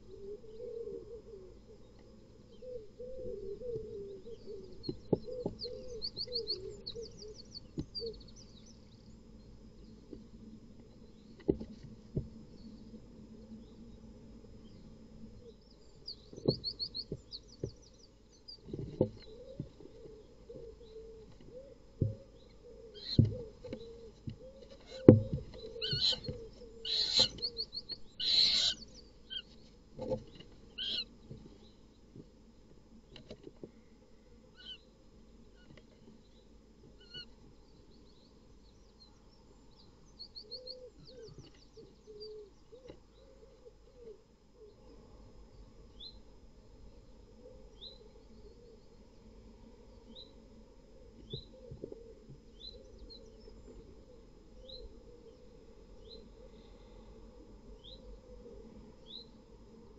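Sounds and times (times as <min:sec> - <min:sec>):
owl wavering calls: 0:00.0 - 0:01.9, 0:02.5 - 0:08.3, 0:19.2 - 0:29.6, 0:30.8 - 0:31.1, 0:34.5 - 0:34.8, 0:37.0 - 0:37.3, 0:40.2 - 0:44.8
owl hissing screeches: 0:25.8 - 0:26.2, 0:26.8 - 0:27.4, 0:28.2 - 0:29.4.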